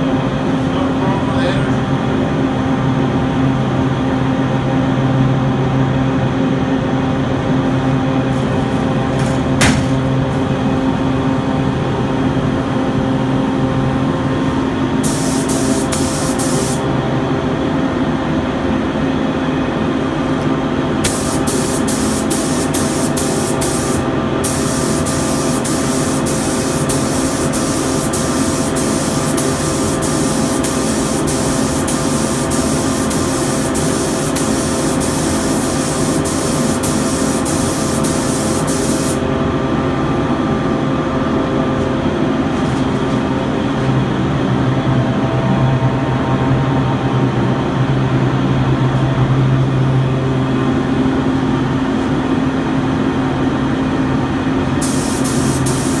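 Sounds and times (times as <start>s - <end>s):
exhaust fan humming: 0.0s - 56.0s
spray gun hissing: 9.2s - 10.1s, 15.0s - 16.8s, 21.0s - 39.2s, 54.8s - 56.0s.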